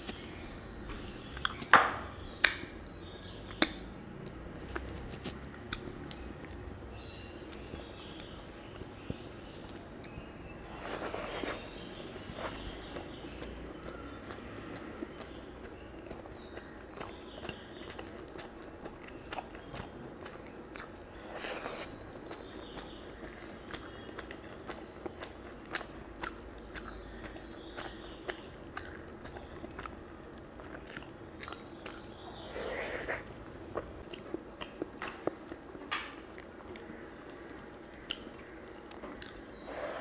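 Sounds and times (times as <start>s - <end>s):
person chewing and lip-smacking: 1.3s - 1.8s, 9.1s - 32.1s, 36.3s - 39.5s.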